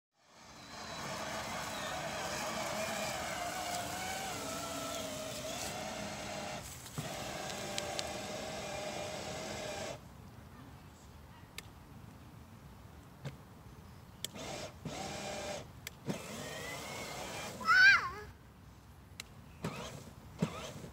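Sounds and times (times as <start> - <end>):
electric motor whining: 0.2 - 10.0, 14.3 - 17.7, 19.6 - 20.9.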